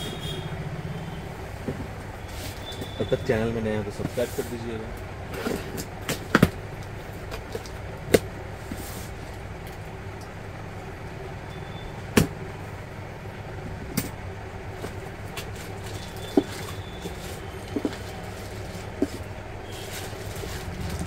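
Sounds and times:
steady background hum: 0.0s - 21.0s
handling clicks and knocks: 14.8s - 19.3s.

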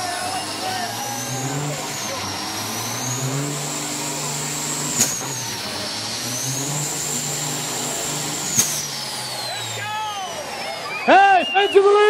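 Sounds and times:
diesel truck engine revving: 0.0s - 12.0s.

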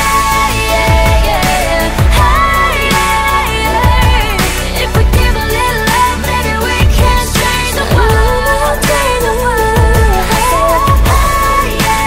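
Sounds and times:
pop song with steady beat: 0.0s - 12.0s.

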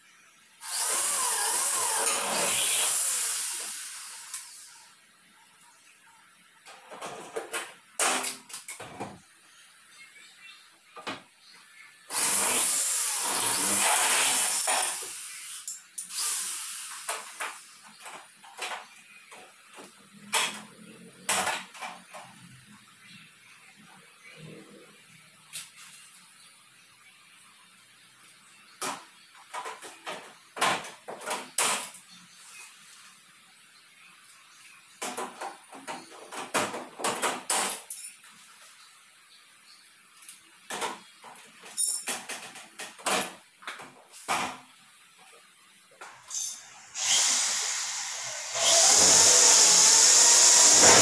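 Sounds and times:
electric drill winding down: 0.6s - 4.6s, 12.1s - 15.2s, 46.3s - 51.0s
metal pieces clattering on tiled floor: 37.6s - 38.2s, 41.6s - 43.3s.

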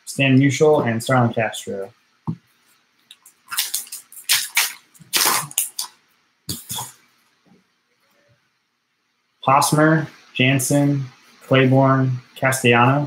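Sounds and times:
wrapper crinkling and tearing: 3.5s - 5.9s.

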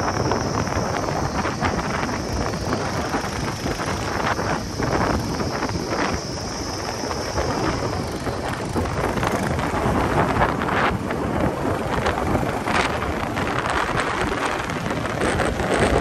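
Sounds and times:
motorcycle engine: 0.0s - 16.0s
road noise: 0.0s - 16.0s
wind buffeting microphone: 0.0s - 16.0s.

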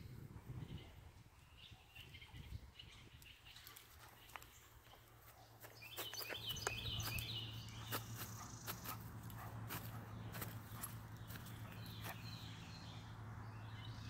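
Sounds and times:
bird chirping: 0.0s - 14.0s
footsteps: 3.9s - 12.3s.

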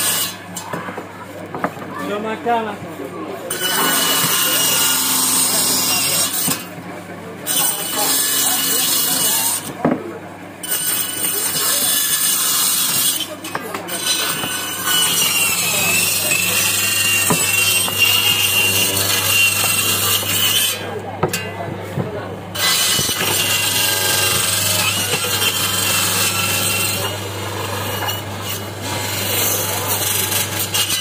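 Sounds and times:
saw motor humming: 3.5s - 6.6s, 11.0s - 21.4s, 22.4s - 31.0s
high whine of saw cutting bone: 3.5s - 6.7s, 7.5s - 9.7s, 10.6s - 21.5s, 22.6s - 31.0s.

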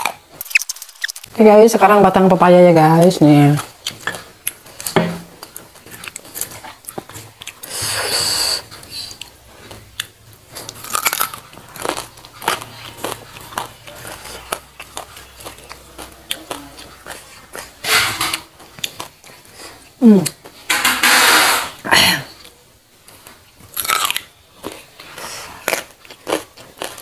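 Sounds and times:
crunching bites and chewing: 0.0s - 1.4s, 9.2s - 17.8s, 18.7s - 19.4s, 23.2s - 27.0s.

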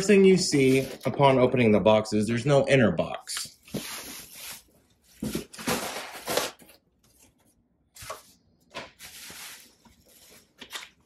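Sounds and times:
plastic wrap crinkling: 8.8s - 11.0s.

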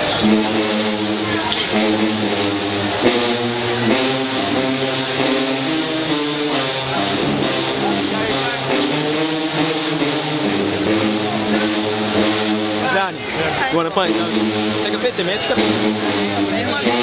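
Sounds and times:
brass band playing chords: 0.0s - 17.0s
sousaphones low line: 0.0s - 17.0s.

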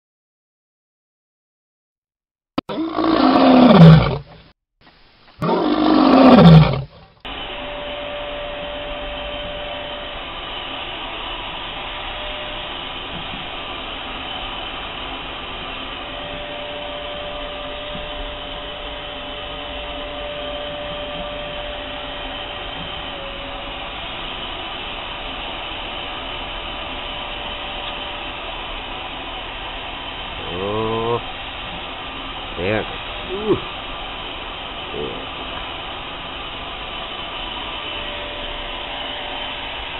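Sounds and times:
loud roars falling in pitch: 2.7s - 4.2s, 5.4s - 6.9s
vacuum cleaner running: 5.4s - 39.9s.

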